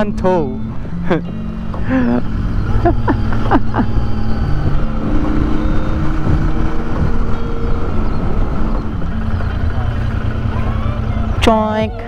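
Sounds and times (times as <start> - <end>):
motorcycle engine running: 0.0 - 12.0
wind rushing over microphone: 3.7 - 9.4.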